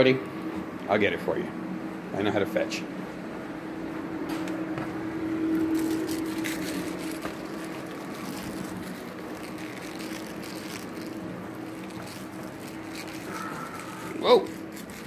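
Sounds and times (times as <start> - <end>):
low mechanical hum: 0.0 - 15.0
rustling: 5.6 - 15.0.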